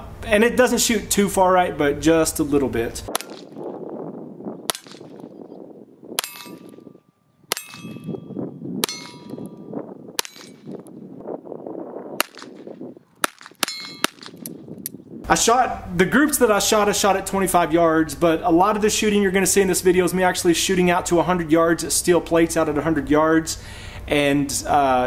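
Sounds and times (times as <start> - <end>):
revolver gunshots: 3.1 - 3.7, 4.6 - 5.4, 7.5 - 8.2, 8.8 - 9.6, 10.2 - 10.8, 12.2 - 14.6
short metallic ring: 6.2 - 10.8, 13.6 - 14.2.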